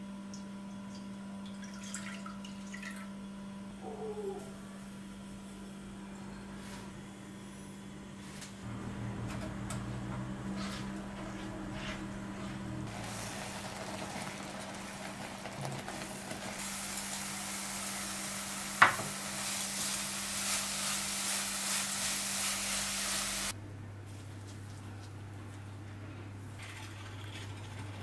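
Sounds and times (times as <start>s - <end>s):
mixture sizzling in a pan: 12.9s - 23.6s.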